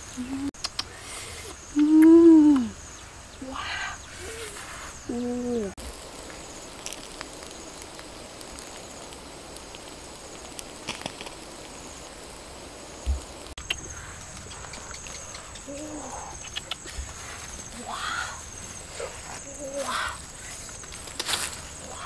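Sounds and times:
sharp clicks: 0:00.6 - 0:01.0, 0:13.4 - 0:17.0.

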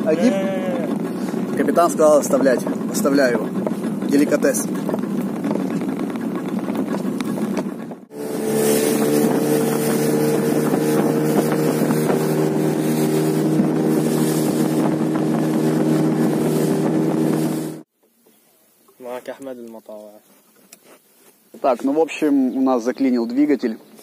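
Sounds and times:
boat engine running: 0:00.0 - 0:17.9
wind noise on microphone: 0:00.4 - 0:17.9.

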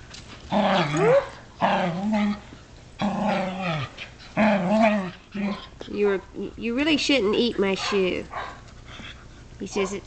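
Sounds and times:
dogs growling: 0:00.5 - 0:06.1.

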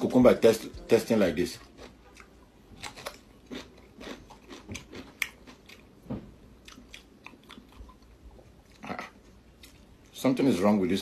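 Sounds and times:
crunchy chewing of cucumber: 0:01.6 - 0:06.0, 0:06.6 - 0:09.9.

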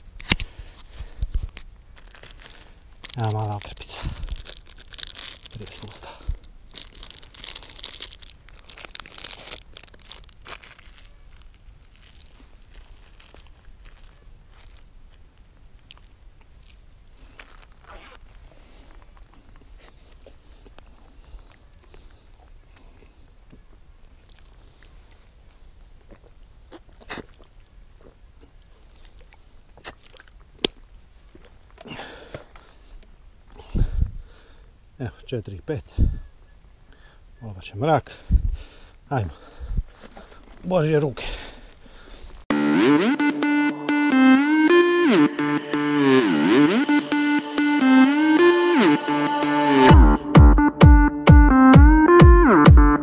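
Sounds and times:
rustling: 0:00.0 - 0:25.8
plastic wrapper crinkling: 0:01.4 - 0:15.2
person chewing crunchy snack: 0:02.0 - 0:14.8, 0:26.1 - 0:32.0.

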